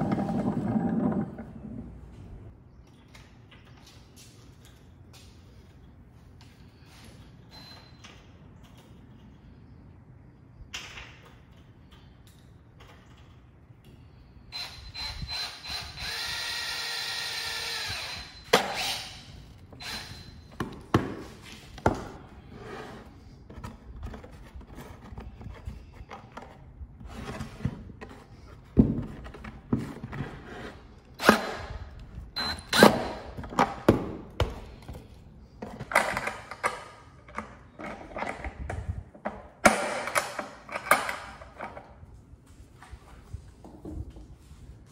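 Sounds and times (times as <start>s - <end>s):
power drill running: 14.5s - 20.4s.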